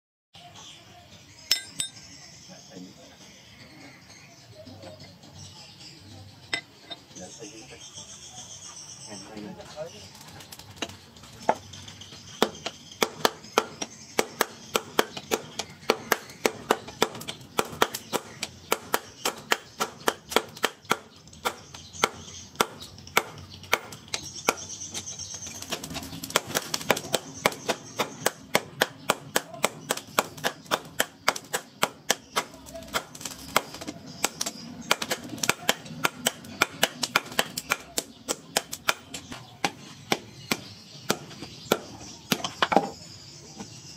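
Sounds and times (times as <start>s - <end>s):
hammer striking steel on anvil: 1.5s - 2.0s.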